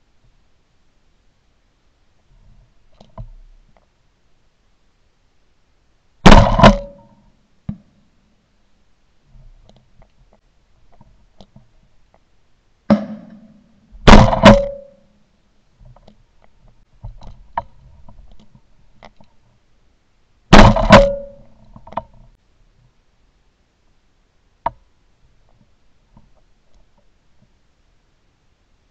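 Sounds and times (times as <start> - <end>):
shotgun blasts: 6.2 - 7.1, 12.9 - 15.0, 20.5 - 21.4.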